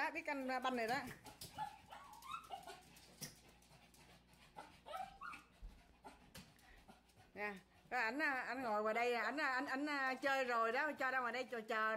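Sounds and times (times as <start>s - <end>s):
small dog whimpering and yipping: 1.6s - 2.8s, 4.8s - 5.5s.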